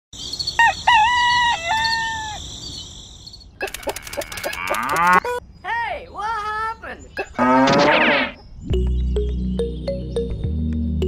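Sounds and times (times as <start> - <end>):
rooster crowing: 0.6 - 2.4
farmyard animal calls: 0.6 - 2.5, 3.6 - 5.4, 6.8 - 8.4.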